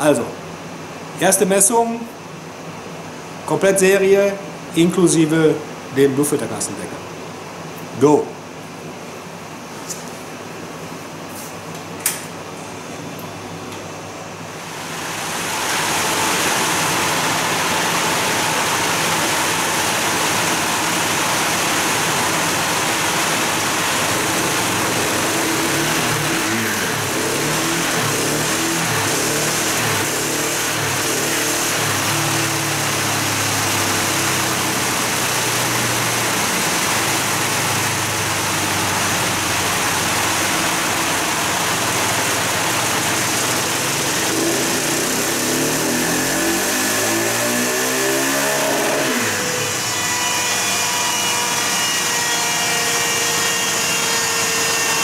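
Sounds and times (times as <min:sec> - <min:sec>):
loud rush of fan air: 0:00.0 - 0:49.9
motorcycle engine revving: 0:14.9 - 0:49.8.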